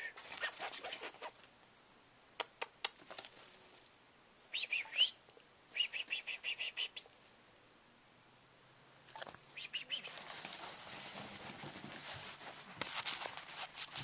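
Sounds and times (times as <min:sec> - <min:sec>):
scuffling: 0:09.1 - 0:14.0.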